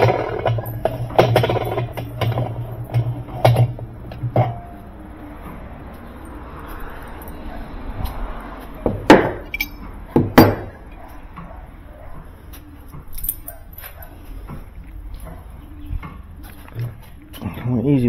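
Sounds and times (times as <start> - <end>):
sharp metal clanks: 0.0 - 4.8, 8.9 - 11.0
light metal clinks: 9.4 - 11.1, 13.1 - 14.2.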